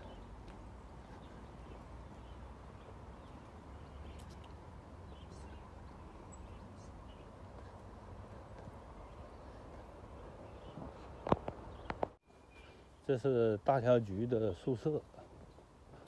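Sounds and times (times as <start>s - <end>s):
footsteps on wet concrete steps: 0.0s - 2.2s
faint bird chirps: 1.0s - 7.9s, 8.9s - 13.3s.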